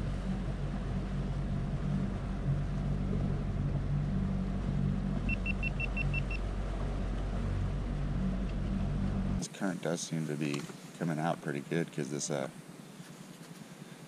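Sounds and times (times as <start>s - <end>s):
electric trolling motor humming: 0.0s - 9.4s
short high beeps: 5.3s - 6.4s.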